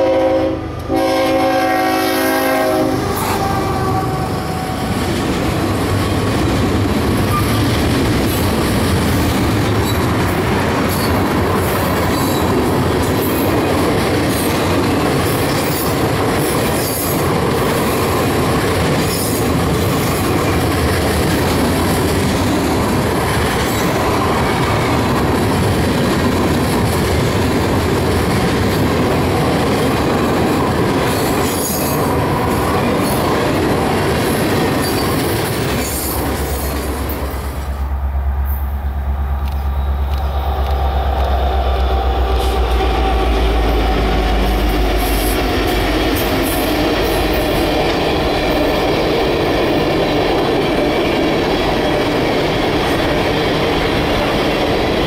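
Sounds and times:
train air horn: 0.0s - 4.9s, 39.8s - 45.8s
steel wheels on rail: 0.0s - 55.0s
train cars clanking: 0.8s - 55.0s.

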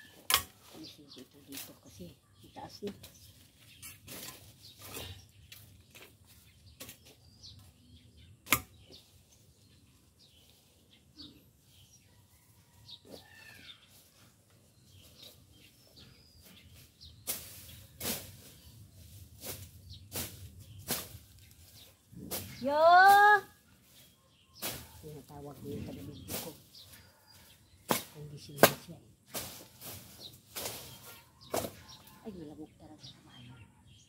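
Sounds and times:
hand tool swishing through grass: 16.4s - 25.0s, 27.9s - 31.8s.

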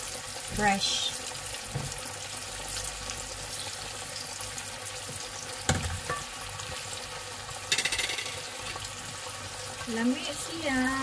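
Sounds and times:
oil bubbling and sizzling: 0.0s - 11.0s
metal strainer clunking on pot: 7.7s - 8.5s.

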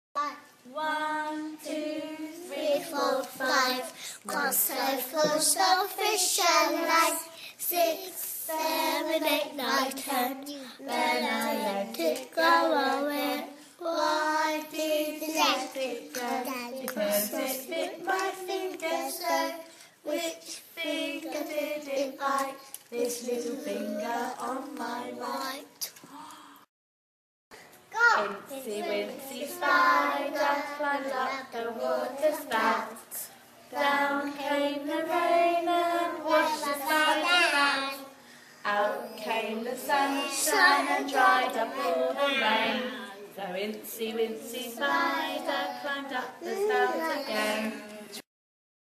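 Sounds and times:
children singing: 0.2s - 25.7s, 28.6s - 43.2s, 44.2s - 47.8s.

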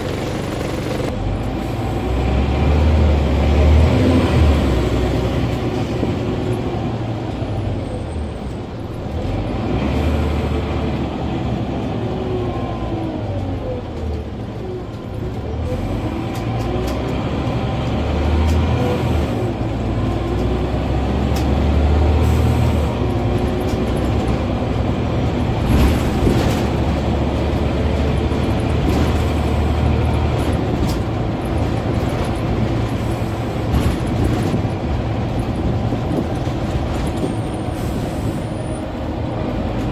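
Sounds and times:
bus diesel engine rumble: 0.0s - 39.9s
bus whine: 0.0s - 39.9s
bus body rattles: 16.2s - 39.9s.

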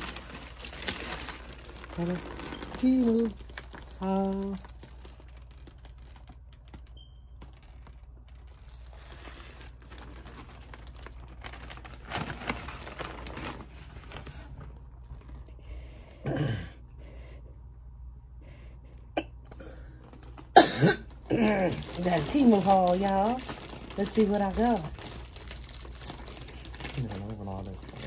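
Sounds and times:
plastic mailer bag rustling: 0.0s - 15.6s, 19.9s - 28.0s
steady low hum: 11.0s - 28.0s.

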